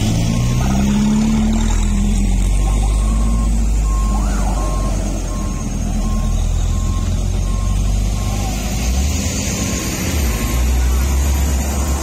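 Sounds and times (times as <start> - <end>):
truck diesel engines idling: 0.0 - 12.0
reversing alarm beeping: 2.5 - 12.0.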